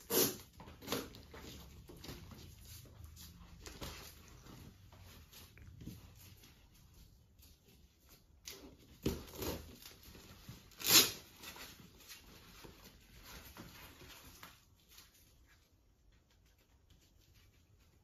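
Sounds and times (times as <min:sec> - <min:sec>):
velcro straps ripping: 0:10.7 - 0:11.4.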